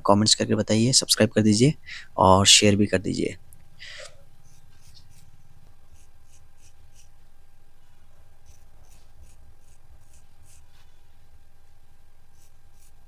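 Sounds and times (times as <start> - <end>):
low steady hum: 0.0 - 13.0
razor scraping through hair: 3.9 - 7.2, 8.4 - 10.9, 12.3 - 13.0.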